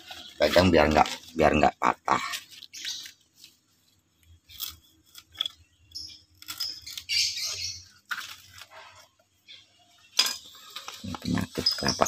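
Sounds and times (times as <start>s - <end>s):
fibres rustling and tearing: 2.1s - 9.3s, 10.2s - 12.0s.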